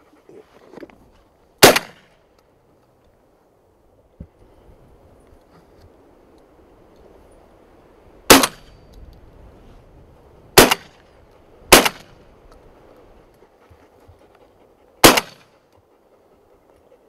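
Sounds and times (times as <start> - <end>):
shotgun shots: 1.6 - 2.1, 8.3 - 8.7, 10.6 - 11.0, 11.7 - 12.2, 15.0 - 15.4.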